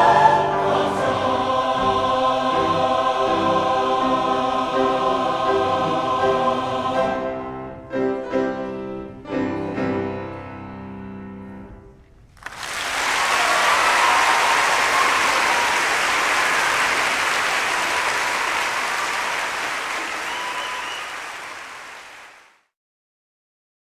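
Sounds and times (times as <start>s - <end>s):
audience applause: 12.4s - 22.7s.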